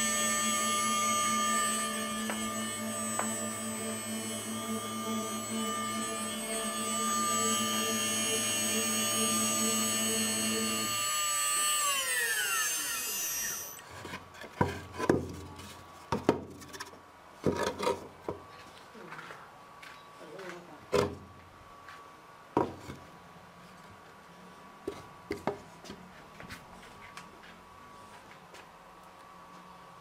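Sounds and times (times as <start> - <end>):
router spindle whining and spinning down: 0.0 - 13.9.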